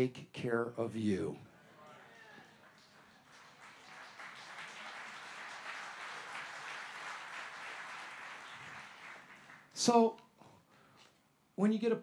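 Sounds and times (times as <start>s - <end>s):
audience applauding: 1.7s - 9.8s.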